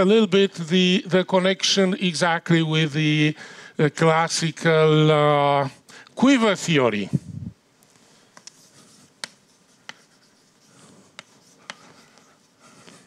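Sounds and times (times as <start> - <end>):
chalk tapping on board: 8.4 - 13.0
chalk scratching on blackboard: 8.5 - 13.0.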